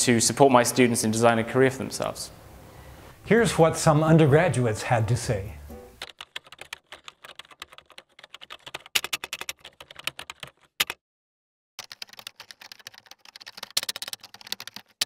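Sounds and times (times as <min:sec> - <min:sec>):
keyboard typing clicks: 0:06.0 - 0:11.0, 0:11.8 - 0:15.0.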